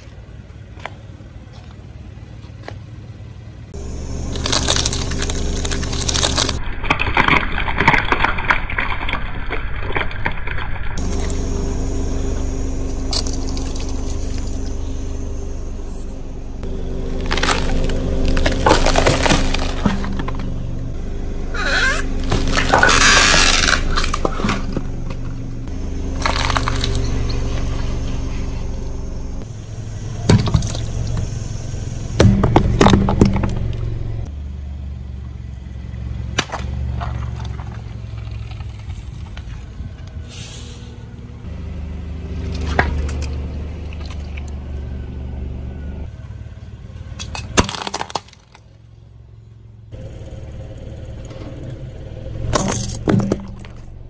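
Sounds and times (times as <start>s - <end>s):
car engine running low: 0.0s - 7.3s, 10.9s - 47.6s, 48.6s - 54.0s
tyres crushing objects: 4.3s - 10.4s, 16.9s - 20.6s, 21.5s - 25.4s, 26.0s - 27.8s, 32.2s - 34.3s, 47.3s - 48.6s, 52.4s - 54.0s.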